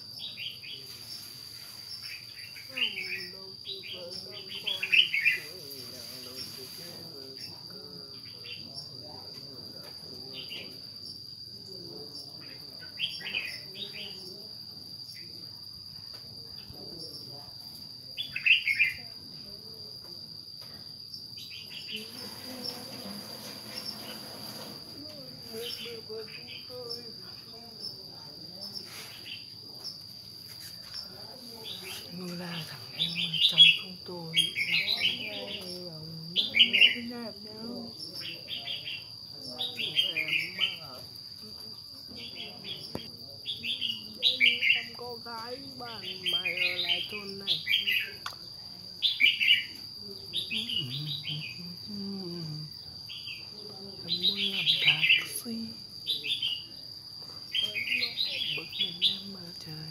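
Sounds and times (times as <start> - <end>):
insects trilling: 0.0 - 59.9
bird chirps: 49.0 - 51.7.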